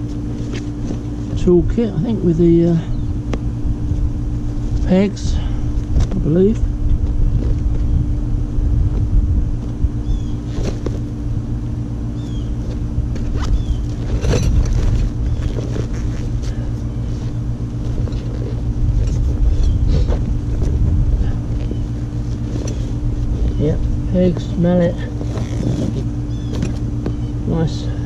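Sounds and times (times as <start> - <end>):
constant low hum: 0.0 - 28.0
wind on microphone: 5.2 - 10.9, 18.0 - 21.9
knocks and rustles of tool roll: 12.7 - 16.6.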